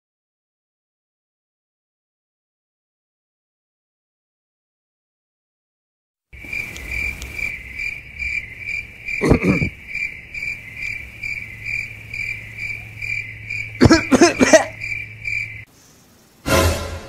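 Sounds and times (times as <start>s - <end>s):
cricket chirping: 6.4s - 17.0s.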